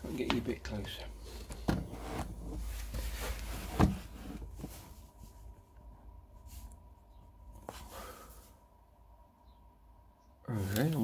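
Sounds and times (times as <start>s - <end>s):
phone handling rumble and rustling: 0.7s - 5.6s.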